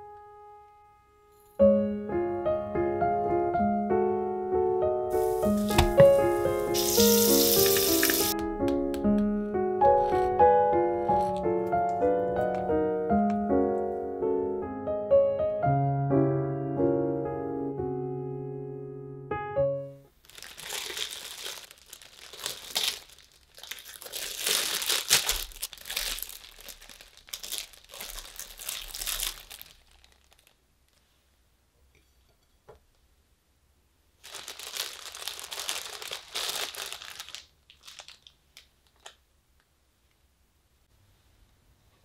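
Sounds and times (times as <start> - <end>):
piano music: 0.0 - 20.1
plastic bag crinkling: 5.1 - 8.4, 20.2 - 31.1, 34.2 - 39.2.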